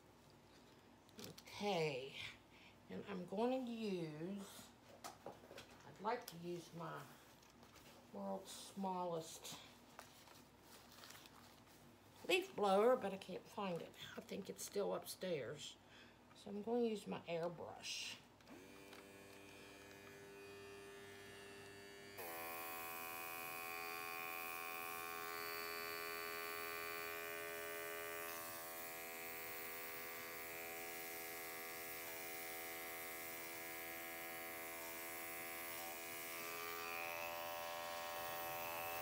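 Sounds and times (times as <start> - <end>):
compressor buzzing hum: 18.4 - 39.0.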